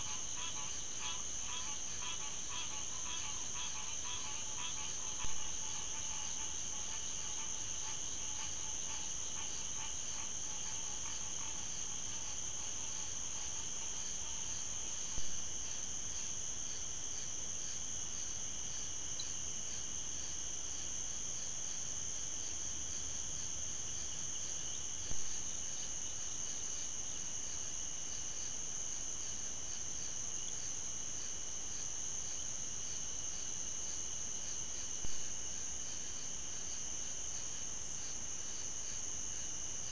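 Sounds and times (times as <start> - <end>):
night insects chorus: 0.0 - 39.9.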